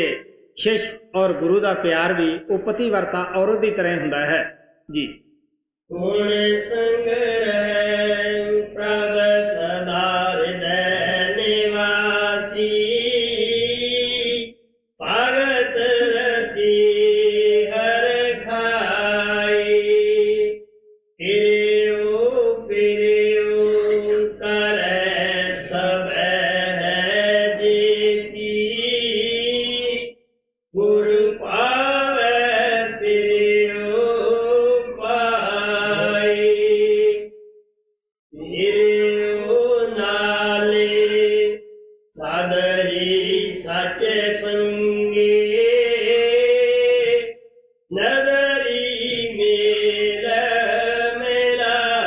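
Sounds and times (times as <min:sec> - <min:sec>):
person chanting a hymn: 0:21.2 - 0:30.0, 0:30.8 - 0:37.3, 0:38.4 - 0:41.6.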